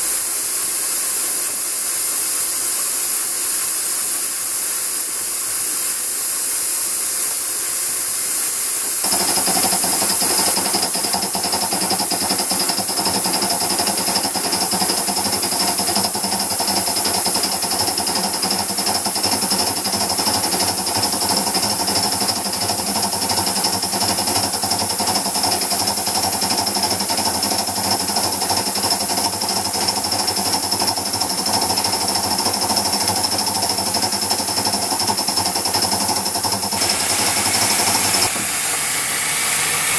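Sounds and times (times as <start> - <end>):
steam hiss: 0.0 - 39.9
rapid mechanical chatter: 9.0 - 39.9.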